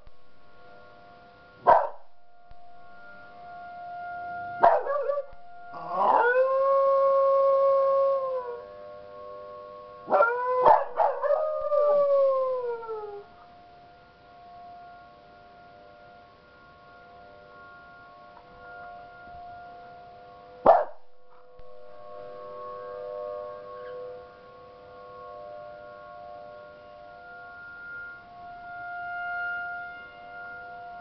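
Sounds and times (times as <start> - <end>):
warning siren tone: 0.0 - 31.0
dog yipping and barking: 1.7 - 2.0, 20.7 - 20.9
dog howling: 5.8 - 8.6, 10.1 - 13.2.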